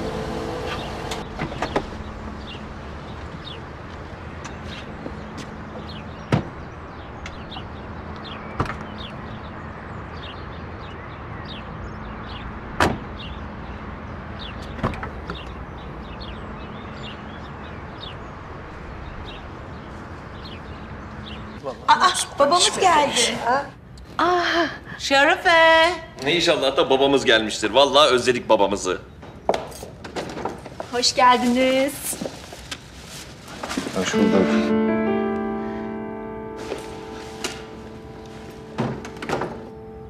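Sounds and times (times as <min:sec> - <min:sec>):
car doors clunking shut: 0:38.6 - 0:39.8.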